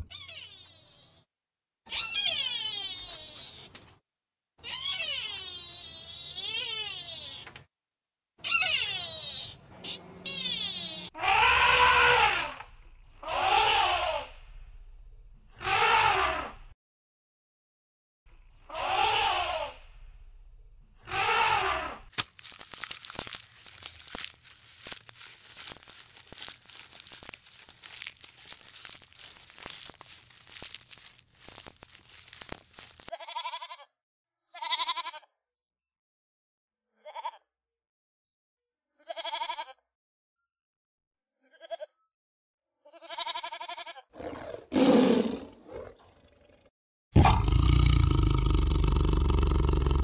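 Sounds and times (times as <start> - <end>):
animal call: 8.4 - 12.6, 13.2 - 14.4, 15.6 - 16.7, 18.6 - 19.8, 21.0 - 22.1, 47.2 - 50.0.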